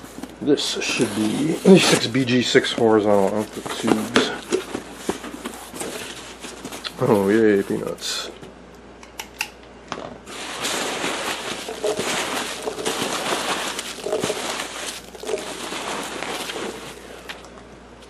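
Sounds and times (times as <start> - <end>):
foam packing peanuts rustling: 0.0 - 8.2, 10.3 - 17.4.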